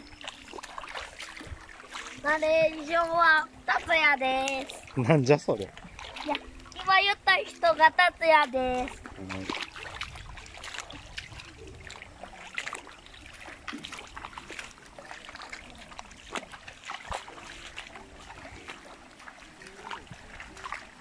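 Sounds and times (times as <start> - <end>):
footsteps splashing in stream: 0.0 - 21.0
water trickling: 0.0 - 21.0.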